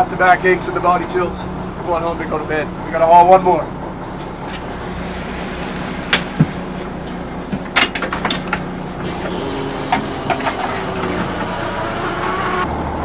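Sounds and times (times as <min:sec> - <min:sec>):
boat engine running: 0:00.0 - 0:13.0
sharp knocks and clicks: 0:07.4 - 0:11.6.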